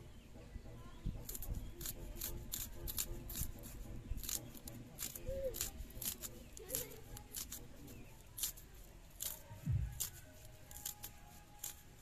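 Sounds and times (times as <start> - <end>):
garlic skins crackling: 1.2 - 12.0
low thump: 9.6 - 10.0.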